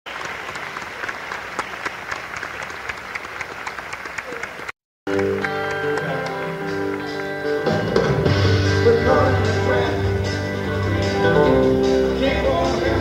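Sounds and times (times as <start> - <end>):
audience applauding: 0.1 - 8.2
live band holding chords: 5.1 - 13.0.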